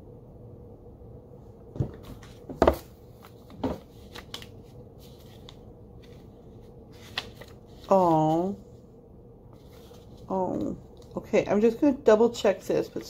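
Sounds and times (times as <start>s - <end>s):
cards knocking on wooden table: 1.8s - 2.9s
pages turning: 2.0s - 8.5s, 9.5s - 11.2s.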